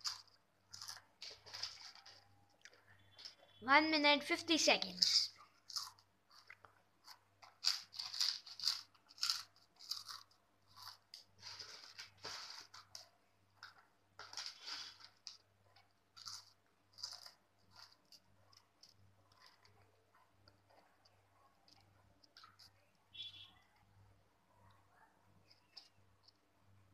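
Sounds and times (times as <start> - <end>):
crunching potato chips: 0.0 - 2.8, 5.5 - 15.4, 16.1 - 19.9.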